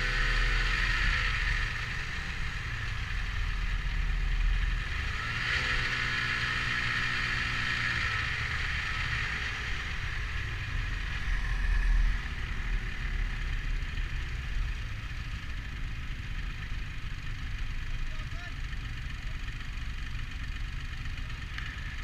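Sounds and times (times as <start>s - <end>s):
snowmobile engine and track: 0.0s - 19.6s
low rumble: 9.8s - 16.1s.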